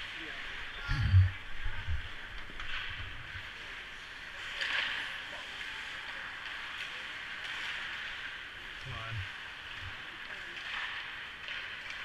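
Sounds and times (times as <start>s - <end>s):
dull low thumps: 0.8s - 2.1s.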